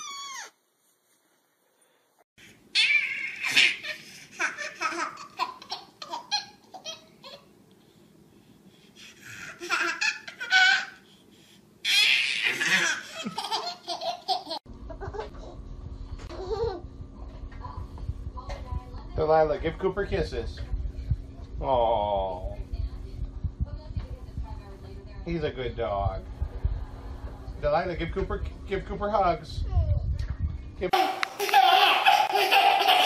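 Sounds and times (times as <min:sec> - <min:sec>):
baby laughing: 0:02.8 - 0:07.5, 0:09.2 - 0:11.0, 0:11.9 - 0:15.3, 0:31.0 - 0:33.0.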